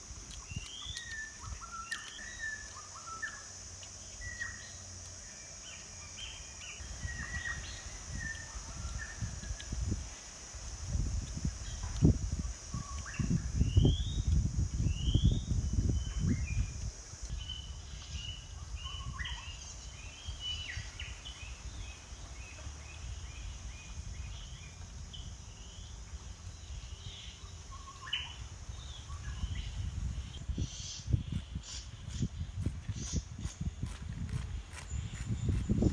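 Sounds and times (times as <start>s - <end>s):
insect buzz: 0.0s - 35.9s
birds chirping and whistling: 0.4s - 3.5s.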